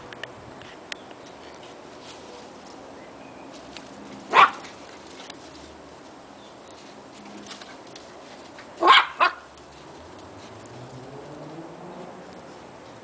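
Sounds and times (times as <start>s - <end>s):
puppy barking: 4.3s - 4.7s, 8.8s - 9.5s.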